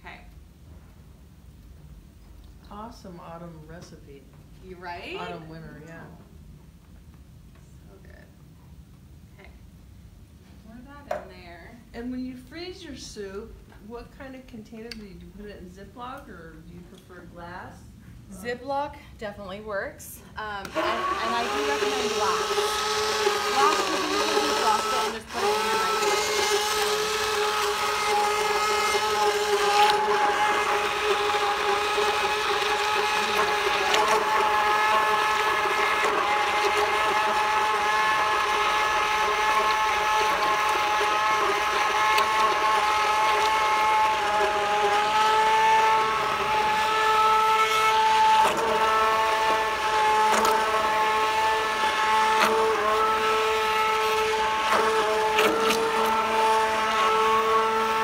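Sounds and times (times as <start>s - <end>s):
immersion blender whining: 20.4s - 58.0s.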